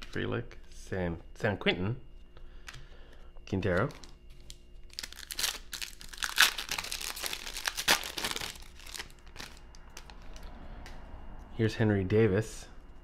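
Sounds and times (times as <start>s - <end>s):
foil wrapper crinkling: 3.7s - 10.4s.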